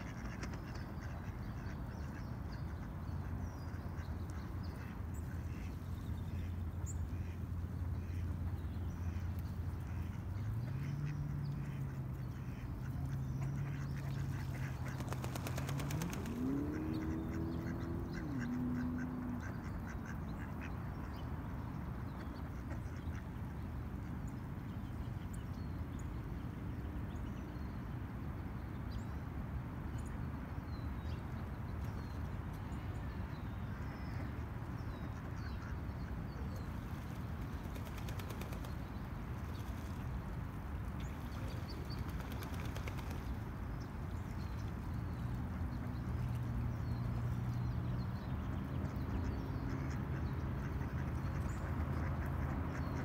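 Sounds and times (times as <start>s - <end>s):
ducks quacking: 0.0s - 8.4s, 9.0s - 20.8s
distant traffic rumble: 0.0s - 53.0s
small birds chirping: 0.1s - 20.6s, 35.4s - 40.2s, 41.0s - 49.9s.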